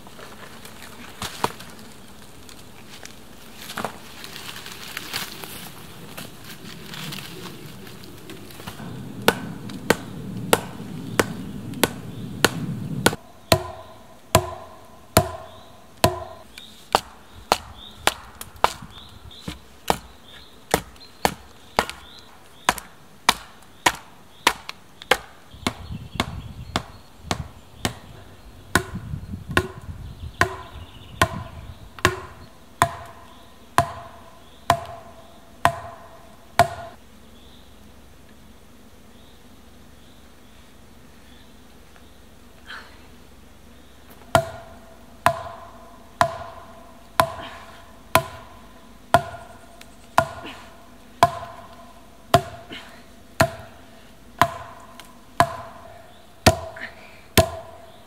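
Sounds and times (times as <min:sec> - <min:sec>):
knife chopping wood: 0:08.6 - 0:20.1, 0:20.7 - 0:28.1, 0:28.7 - 0:33.2, 0:33.8 - 0:36.9, 0:44.3 - 0:49.5, 0:50.2 - 0:50.6, 0:51.2 - 0:52.7, 0:53.4 - 0:53.8, 0:54.4 - 0:56.8, 0:57.4 - 0:57.8.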